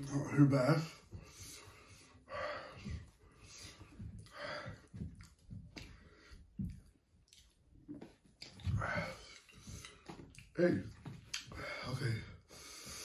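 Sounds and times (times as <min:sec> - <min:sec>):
heavy breathing through mouth: 0:00.7 - 0:06.8, 0:08.6 - 0:10.3, 0:11.4 - 0:13.0
man chewing: 0:06.8 - 0:10.5.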